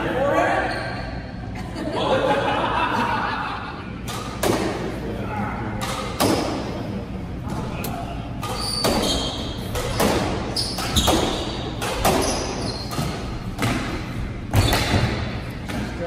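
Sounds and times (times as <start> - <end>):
squash ball hitting racquets and walls: 4.0 - 16.0
shoes squeaking on hardwood floor: 8.5 - 13.4.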